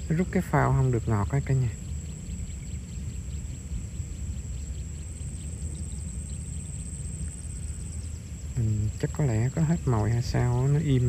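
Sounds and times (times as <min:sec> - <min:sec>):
faint high whine: 0:00.0 - 0:11.0
steady low rumble: 0:00.0 - 0:11.0
light ticks: 0:07.2 - 0:07.5.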